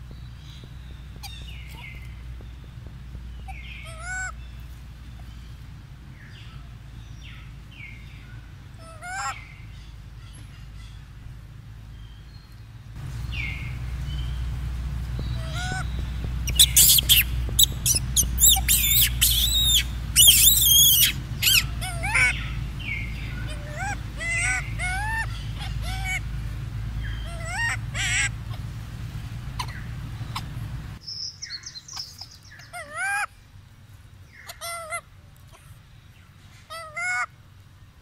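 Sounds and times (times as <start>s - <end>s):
monkey squeaky calls: 1.2s - 2.1s, 3.4s - 4.4s, 8.8s - 9.5s, 15.2s - 26.3s, 27.0s - 28.7s, 29.6s - 30.7s, 34.4s - 35.0s
monkey shrill screams: 16.5s - 22.5s, 23.4s - 26.2s, 27.3s - 28.3s.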